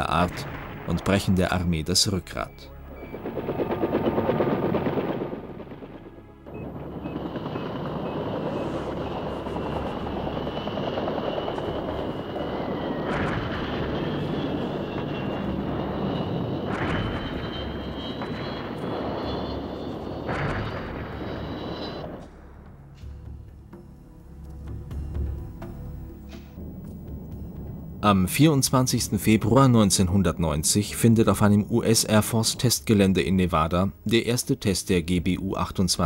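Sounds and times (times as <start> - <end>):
high turbine whine: 2.4 - 22.3
helicopter rotor thrum: 2.9 - 22.2.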